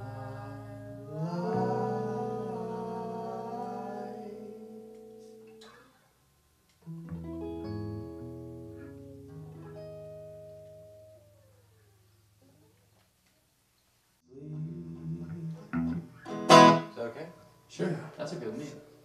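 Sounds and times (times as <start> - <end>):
guitar chord ringing: 3.0 - 12.1, 15.8 - 17.5.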